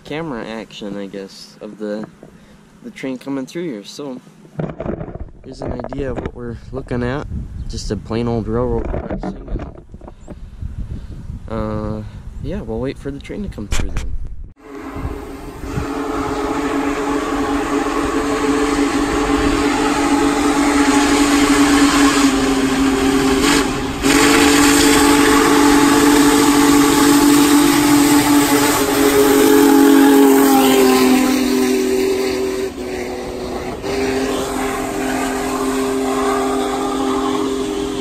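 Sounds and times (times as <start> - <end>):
rush of passing train: 14.6 - 38.0
steam locomotive chime whistle: 14.6 - 38.0.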